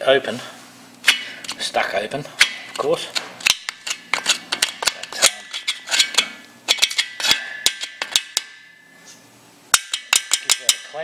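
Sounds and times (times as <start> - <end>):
screwdriver scraping metal: 2.8 - 8.3.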